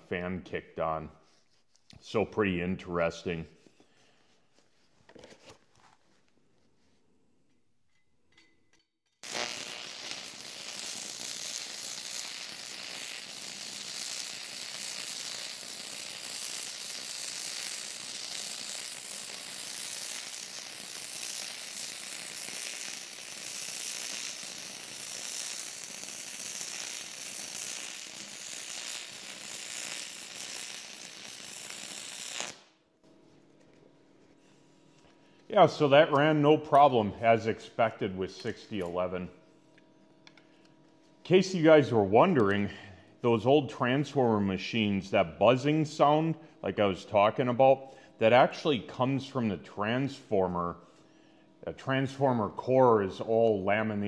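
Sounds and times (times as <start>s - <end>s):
welding arc buzzing: 9.1s - 32.8s.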